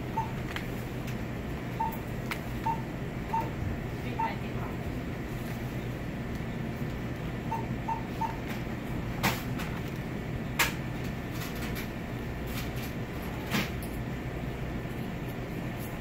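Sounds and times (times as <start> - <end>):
steady low hum: 0.0 - 16.0
short electronic beeps: 2.6 - 3.5, 7.5 - 8.4.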